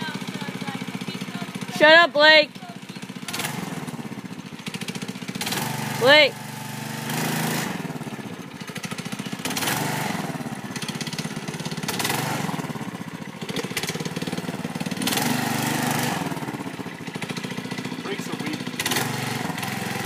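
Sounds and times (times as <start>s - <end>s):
go-kart engine revving: 0.0s - 20.0s.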